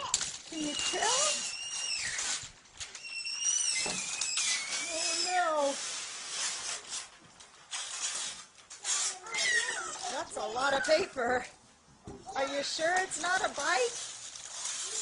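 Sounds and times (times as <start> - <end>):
child squealing: 0.0 - 2.4, 3.0 - 5.6, 8.9 - 10.2
wrapping paper ripping and crumpling: 0.0 - 11.2, 12.3 - 15.0.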